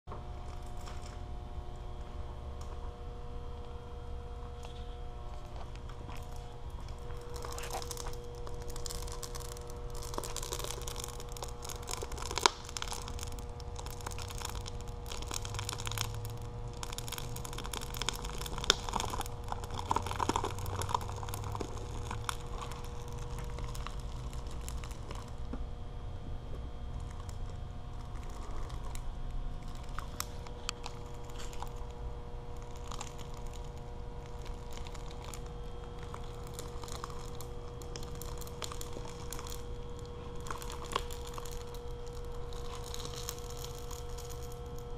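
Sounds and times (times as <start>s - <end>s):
steady electric hum: 0.0s - 44.9s
plastic bag crinkling: 4.5s - 25.6s, 26.8s - 44.9s
roller running over bag: 32.6s - 44.9s.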